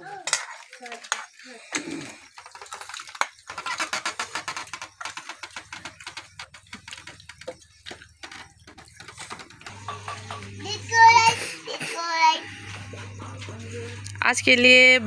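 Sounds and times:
low steady hum: 5.8 - 15.0.

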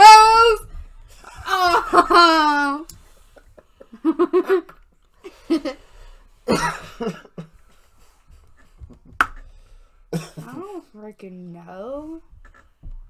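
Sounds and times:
person coughing: 6.5 - 7.5, 10.1 - 10.8.

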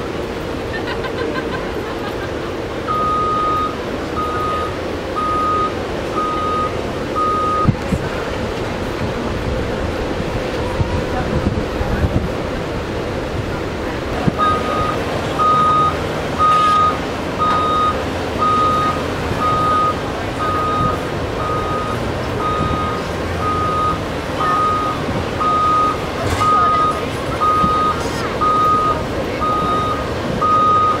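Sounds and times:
excavator travel alarm beeping: 2.5 - 8.0, 14.2 - 31.0.

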